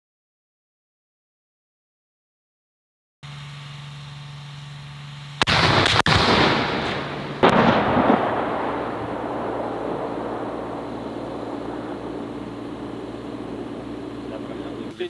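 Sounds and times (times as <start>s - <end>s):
low steady hum: 3.2s - 15.0s
artillery booms with rolling rumble: 5.4s - 14.9s.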